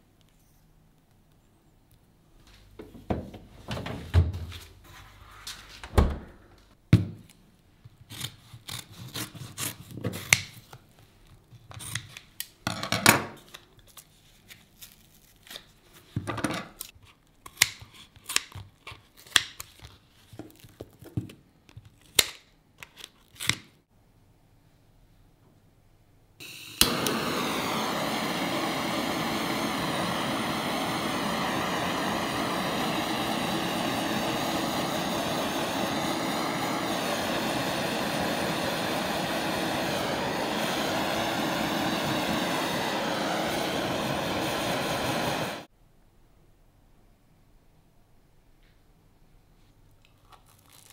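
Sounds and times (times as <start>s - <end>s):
paper carton crinkling: 50.2s - 50.9s.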